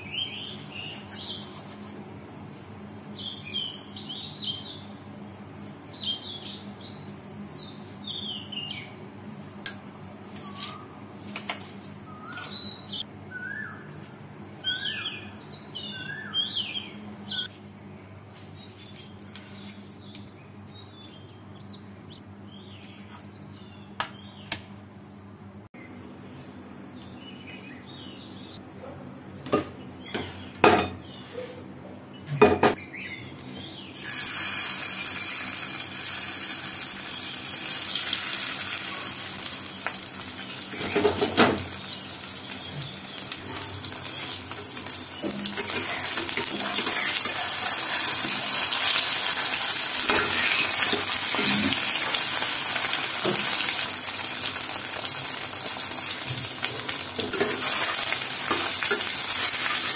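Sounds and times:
food sizzling in hot oil: 0:34.0 - 0:59.9.

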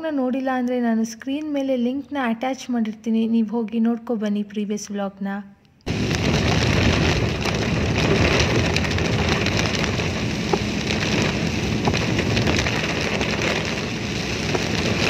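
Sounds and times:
heavy rain on car windshield: 0:05.9 - 0:15.0
faint raindrop ticks: 0:06.2 - 0:15.0.

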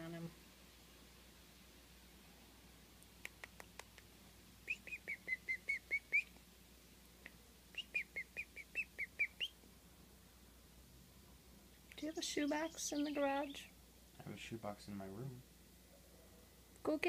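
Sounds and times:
faint clicks: 0:03.0 - 0:04.1
baby chickadee chirping: 0:04.7 - 0:06.3, 0:07.7 - 0:09.6, 0:11.9 - 0:13.7.

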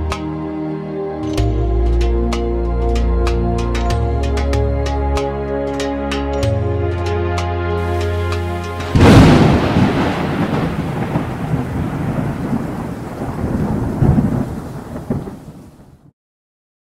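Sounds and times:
music: 0:00.0 - 0:10.6
rain hiss: 0:07.8 - 0:16.0
thunder rumbling: 0:07.8 - 0:16.1.

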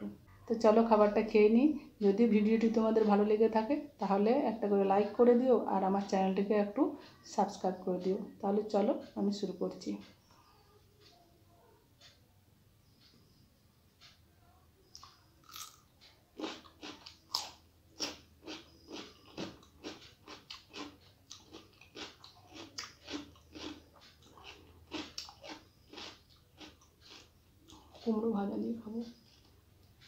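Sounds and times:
person chewing food: 0:14.8 - 0:28.1, 0:29.0 - 0:30.0.

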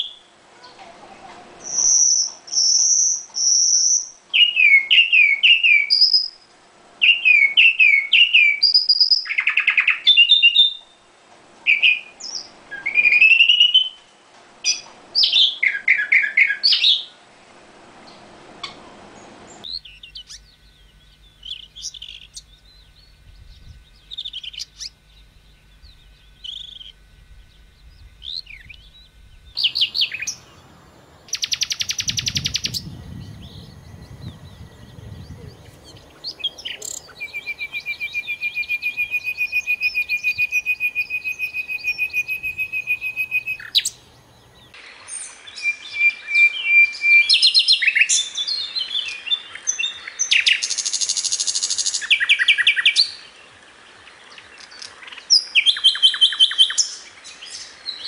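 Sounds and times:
nightingale singing: 0:01.6 - 0:06.4, 0:07.0 - 0:10.9, 0:19.6 - 0:53.3, 0:54.5 - 0:58.0.

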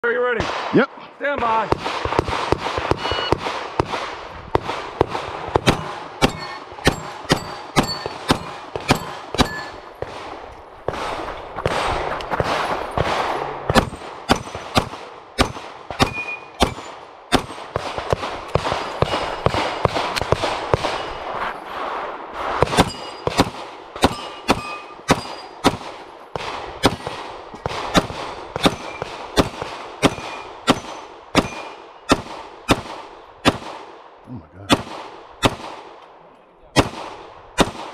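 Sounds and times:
pistol firing rapid shots: 0:01.6 - 0:21.2, 0:22.6 - 0:34.0, 0:34.7 - 0:36.0, 0:36.7 - 0:37.9
steel plate ringing: 0:05.7 - 0:09.9, 0:22.8 - 0:23.4, 0:24.0 - 0:25.7.

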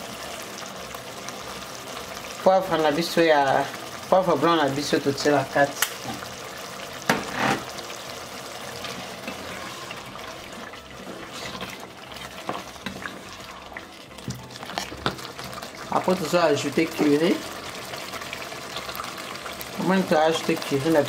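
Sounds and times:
sauce simmering hiss: 0:00.0 - 0:21.0
wooden spoon stirring sauce: 0:08.3 - 0:16.7.

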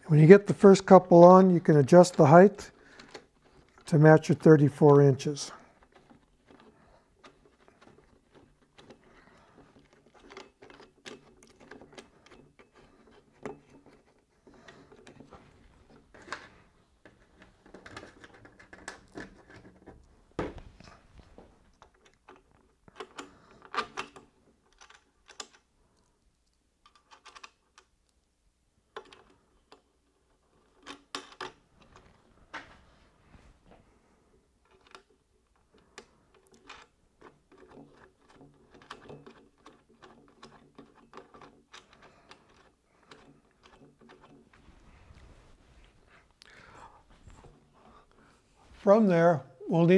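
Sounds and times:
plastic box handled against metal: 0:05.5 - 0:25.4, 0:34.6 - 0:48.4.

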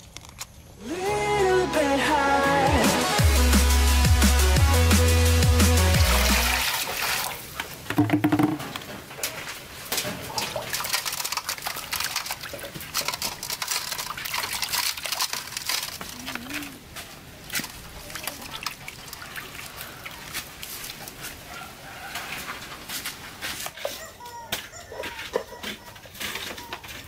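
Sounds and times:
water splashing in metal basin: 0:06.0 - 0:09.3, 0:09.9 - 0:16.5, 0:17.4 - 0:21.2.

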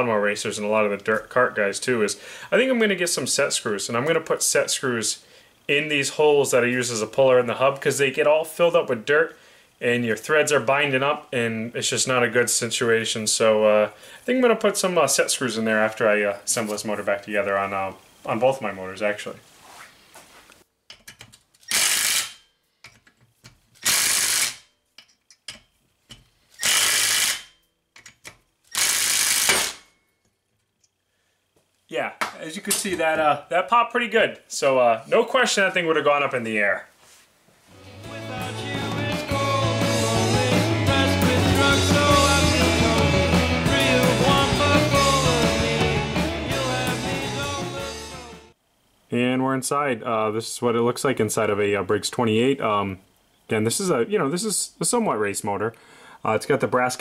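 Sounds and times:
tool and screws clicking: 0:20.9 - 0:29.9
power driver bursts: 0:21.6 - 0:22.4, 0:23.8 - 0:24.6, 0:26.5 - 0:27.5, 0:28.7 - 0:29.9
rock music: 0:37.8 - 0:48.6.

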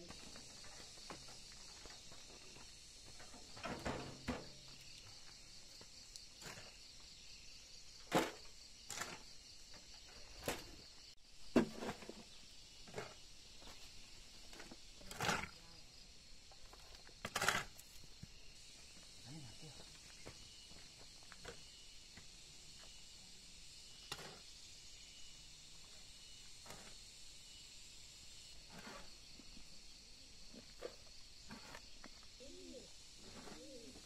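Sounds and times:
high insect drone: 0:00.0 - 0:34.0
shovel scraping into soil: 0:08.1 - 0:09.4, 0:11.6 - 0:13.2, 0:14.4 - 0:15.6, 0:17.0 - 0:18.0, 0:23.9 - 0:24.6, 0:26.5 - 0:27.1, 0:28.5 - 0:29.4, 0:30.6 - 0:32.0, 0:33.2 - 0:33.9.

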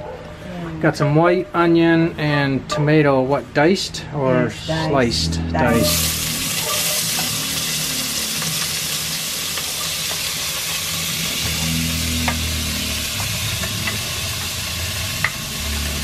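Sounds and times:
onion sizzling in hot oil: 0:05.7 - 0:16.0.

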